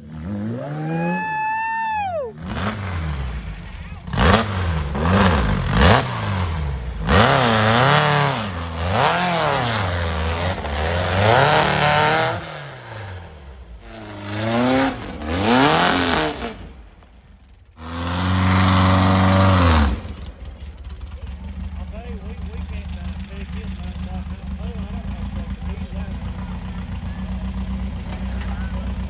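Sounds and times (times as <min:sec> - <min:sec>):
buggy engine revving hard: 0:00.0 - 0:01.3, 0:02.3 - 0:16.9, 0:17.8 - 0:20.5.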